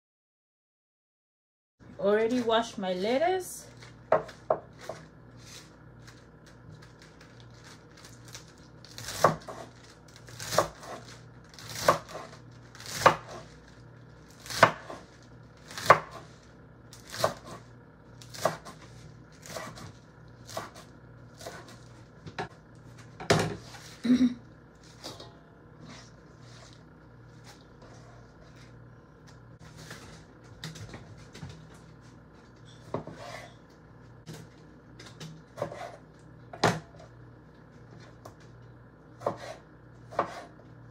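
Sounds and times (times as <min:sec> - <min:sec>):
knife chopping on wooden board: 0:09.0 - 0:09.7, 0:10.4 - 0:11.0, 0:11.7 - 0:13.4, 0:14.4 - 0:15.0, 0:15.7 - 0:16.3, 0:17.1 - 0:17.6, 0:18.3 - 0:18.8, 0:19.4 - 0:19.9, 0:20.5 - 0:20.8, 0:21.4 - 0:22.6, 0:32.9 - 0:33.5, 0:35.6 - 0:36.0, 0:39.2 - 0:40.6.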